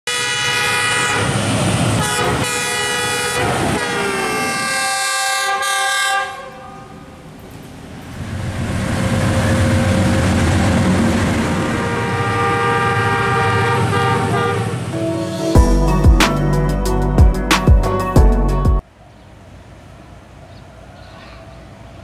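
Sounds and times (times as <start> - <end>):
approaching train rumble: 0.1 - 5.3, 6.8 - 18.8
locomotive horn blast: 0.1 - 7.1, 9.0 - 17.2.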